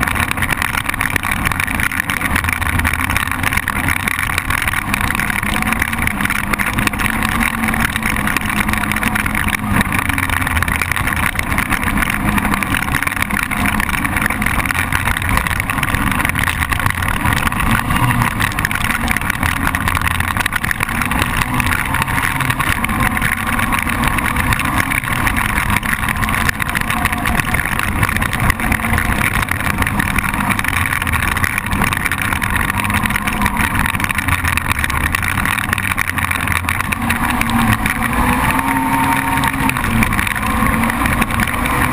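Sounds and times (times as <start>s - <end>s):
quad engine running: 0.0s - 41.9s.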